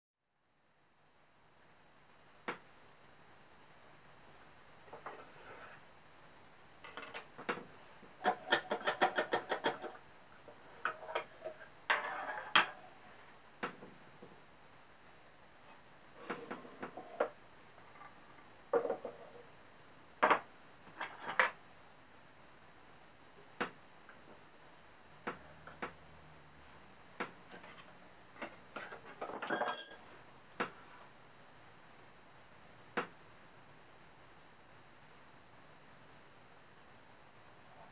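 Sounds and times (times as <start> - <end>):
wooden props knocking on table: 18.7 - 19.2.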